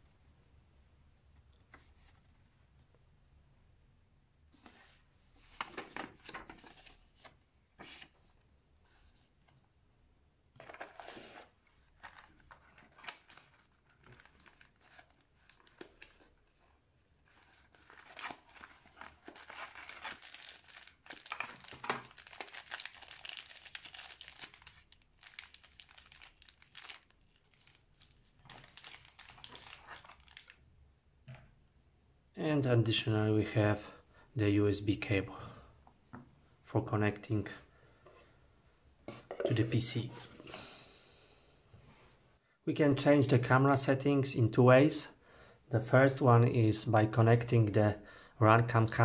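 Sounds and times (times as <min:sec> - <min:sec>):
paper packaging rustling: 0:04.6 - 0:08.3, 0:10.6 - 0:30.6
plastic bags crinkling: 0:17.6 - 0:30.6.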